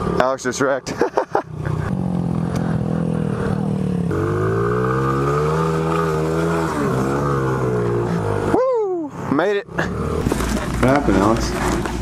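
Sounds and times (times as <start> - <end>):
pit bike engine revving: 0.0 - 8.6, 9.2 - 12.0.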